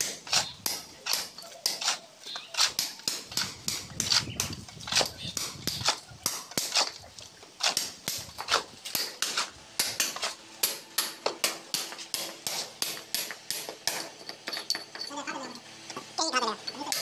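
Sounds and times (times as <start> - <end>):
shovel scraping on concrete: 0.0 - 10.4, 11.9 - 12.8.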